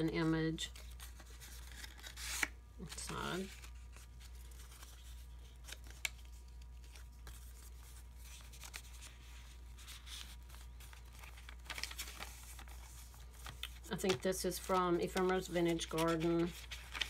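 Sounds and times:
faint paper rustling: 0.0 - 17.0.

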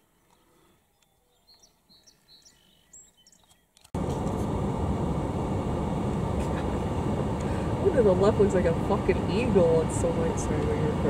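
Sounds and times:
songbird chirps: 0.0 - 3.9
vehicle engine and cab noise: 3.8 - 11.0.

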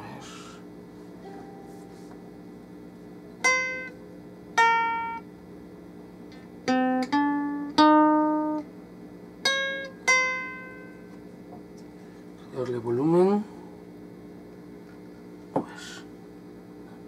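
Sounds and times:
amplifier hum: 0.0 - 17.0
ukulele plucked notes: 1.2 - 2.1, 3.4 - 4.0, 4.6 - 5.3, 6.6 - 8.7, 9.4 - 11.1.

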